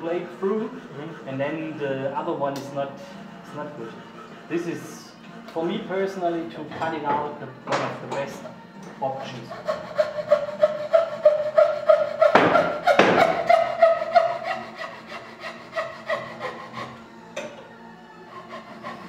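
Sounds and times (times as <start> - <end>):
hand saw cutting wood: 9.2 - 17.1, 18.3 - 19.0.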